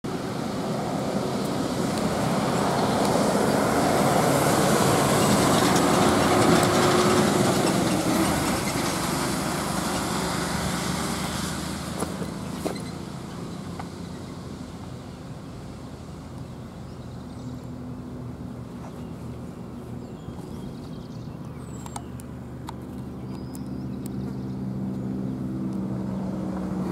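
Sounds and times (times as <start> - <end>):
bus diesel engine passing: 0.1 - 26.9.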